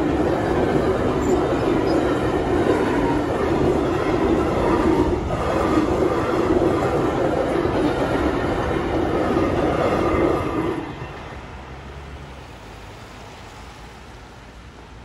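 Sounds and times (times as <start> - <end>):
wheels clattering over rails: 0.0 - 11.4
freight train rolling past: 0.0 - 12.8.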